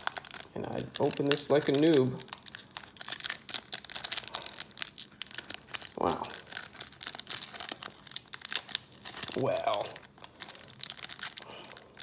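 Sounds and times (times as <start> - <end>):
foil wrapper crackling: 0.0 - 12.0
person saying wow: 9.3 - 10.0.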